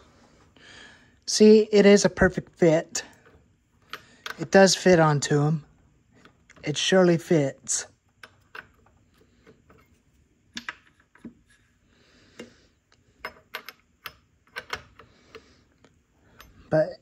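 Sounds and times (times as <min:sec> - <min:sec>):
metallic clicks of wrench on nuts: 0:13.2 - 0:15.5.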